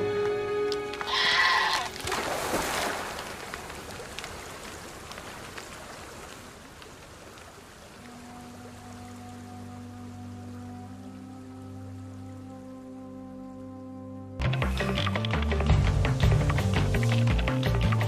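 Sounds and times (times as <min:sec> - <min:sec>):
low sustained music notes: 0:00.0 - 0:01.1, 0:07.8 - 0:18.0.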